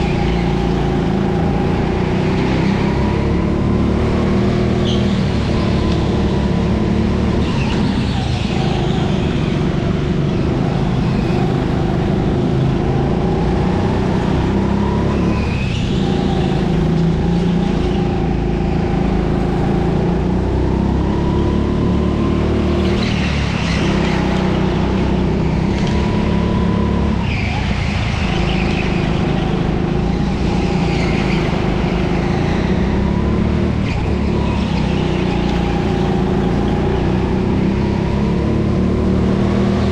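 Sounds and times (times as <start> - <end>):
kart engine revving: 0.0 - 39.9
tyres squealing: 22.8 - 37.6.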